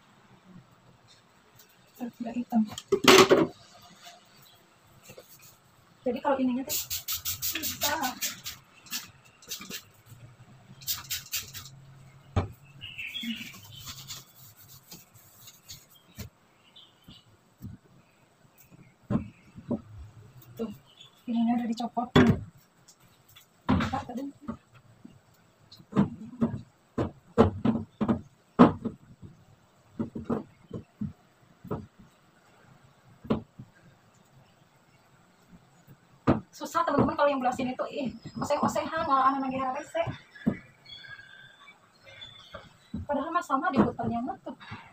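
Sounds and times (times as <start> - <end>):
rubbing and scraping: 2.8 - 5.8, 6.6 - 16.4.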